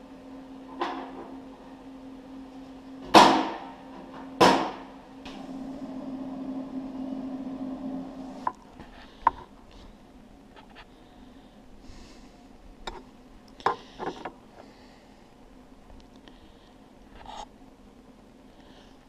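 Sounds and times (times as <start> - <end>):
welder humming: 5.1 - 9.4.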